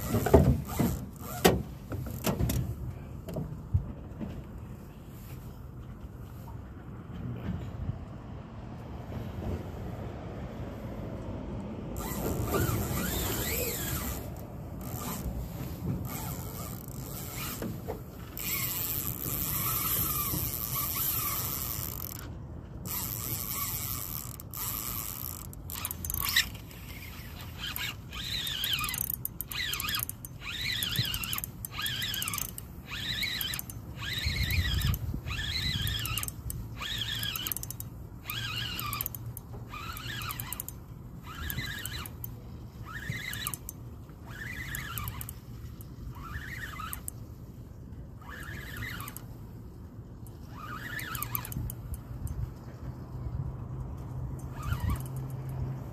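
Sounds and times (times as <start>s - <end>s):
fishing reel drag squealing: 12.0s - 22.2s, 22.9s - 47.6s, 48.2s - 49.4s, 50.3s - 52.4s, 54.4s - 55.6s
fishing reel gears ratcheting: 12.0s - 55.9s.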